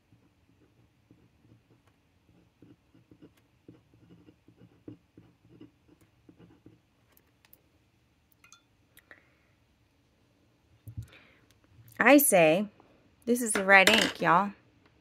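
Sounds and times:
pen writing on paper: 0.1s - 6.9s.

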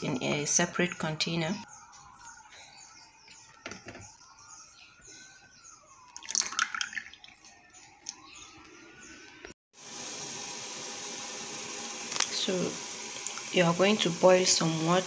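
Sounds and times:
faint siren wailing: 0.0s - 9.6s
batter pouring and dripping into bowl: 6.1s - 7.4s
liquid splash: 6.1s - 7.5s.

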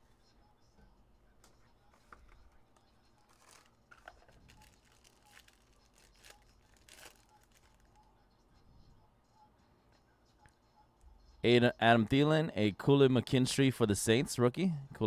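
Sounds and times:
packaging crinkling and tearing: 3.2s - 7.9s.

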